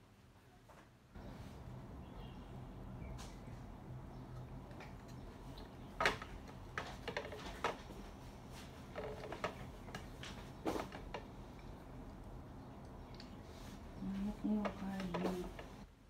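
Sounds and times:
small objects clattering on a table: 5.9 - 11.4.

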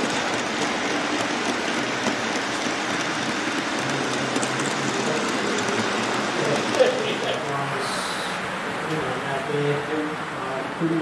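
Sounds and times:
model train wheels clattering: 0.0 - 7.5.

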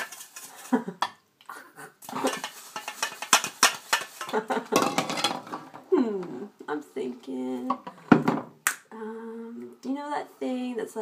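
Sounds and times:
pots and cutlery clattering: 0.0 - 1.2, 2.0 - 5.8.

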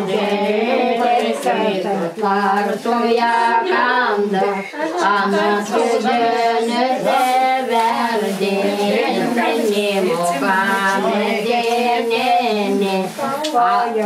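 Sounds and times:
woman singing unaccompanied: 0.0 - 14.0.

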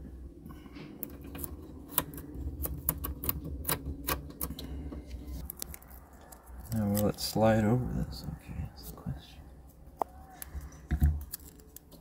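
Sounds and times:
steady low hum: 0.0 - 12.0
fingers clicking plastic connectors: 1.0 - 4.7, 10.0 - 12.0.

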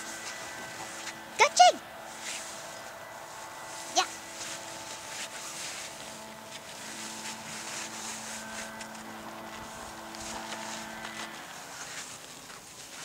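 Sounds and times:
engine hum: 0.0 - 13.0
gloved hands crunching snow: 0.2 - 13.0.

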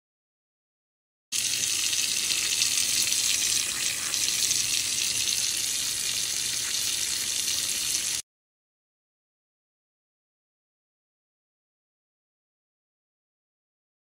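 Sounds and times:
faucet running into sink: 1.4 - 8.2.

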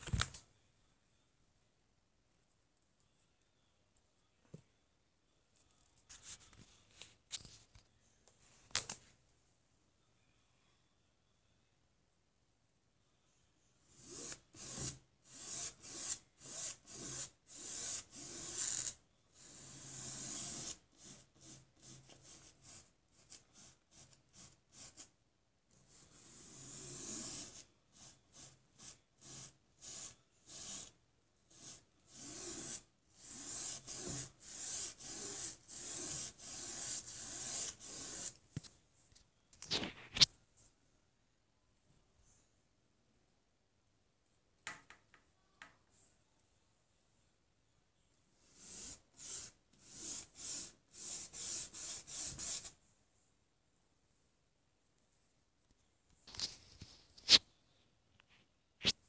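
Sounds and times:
paintbrush scrubbing on canvas: 25.9 - 30.9, 31.5 - 38.4, 48.4 - 52.8.

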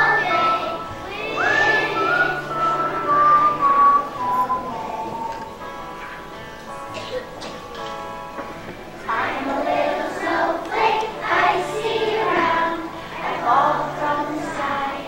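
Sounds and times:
children's choir singing: 0.0 - 5.6, 9.0 - 15.0
accompaniment music: 0.0 - 15.0.

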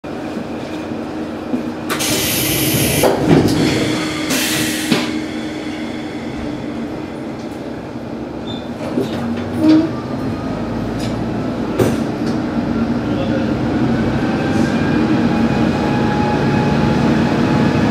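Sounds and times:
compressed air hissing: 1.9 - 7.7.

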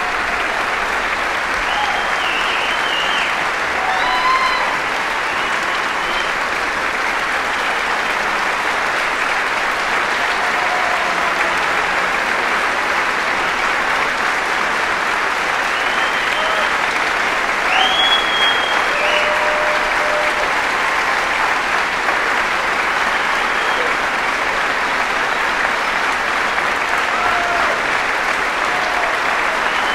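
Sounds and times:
audience applauding: 0.0 - 29.9.

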